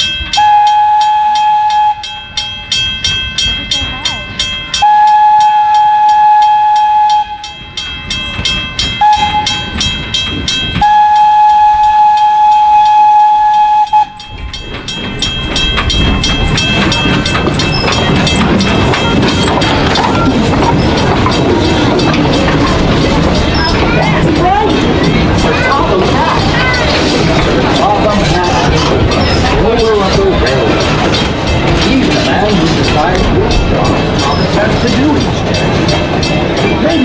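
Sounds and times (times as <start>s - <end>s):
steam whistle: 0.4s - 2.1s, 4.8s - 7.5s, 10.8s - 14.2s
locomotive exhaust chuffing: 3.5s - 37.0s.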